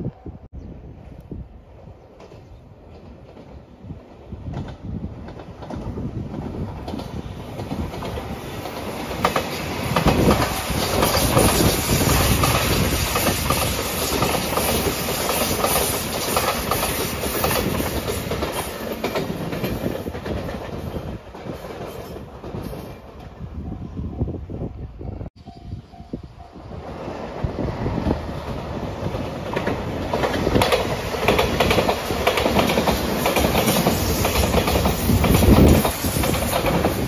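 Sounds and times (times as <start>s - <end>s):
electric train passing: 0.2s - 37.0s
wheels clacking over rail joints: 4.5s - 23.4s, 27.9s - 37.0s.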